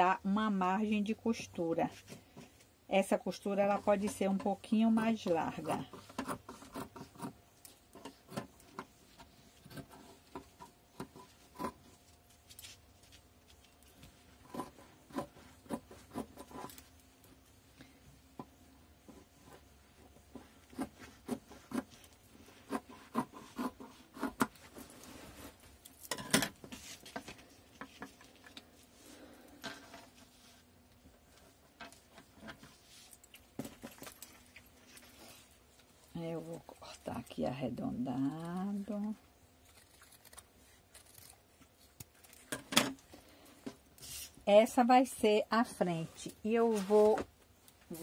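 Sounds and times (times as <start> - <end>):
scissors cutting fabric: 3.6 - 7.4, 20.4 - 25.0, 38.4 - 42.5
fabric and paper rustling: 26.6 - 42.5, 46.0 - 48.0.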